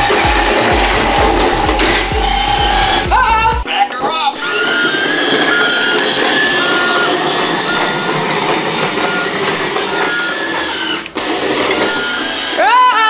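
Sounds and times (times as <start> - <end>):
toy truck mechanical whir: 0.0 - 3.2, 4.4 - 13.0
high reversing beep: 0.0 - 3.5, 4.4 - 10.8, 11.8 - 12.3.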